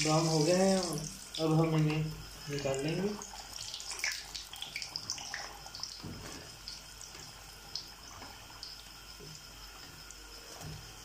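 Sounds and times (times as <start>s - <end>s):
hot oil sizzling and popping: 0.0s - 11.0s.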